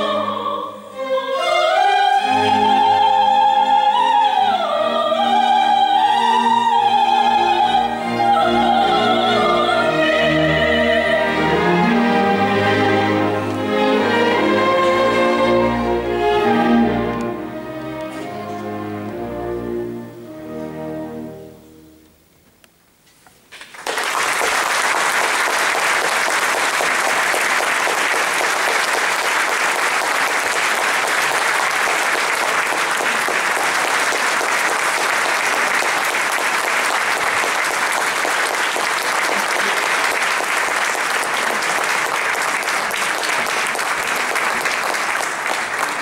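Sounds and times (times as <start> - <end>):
audience applauding: 23.6 - 46.0.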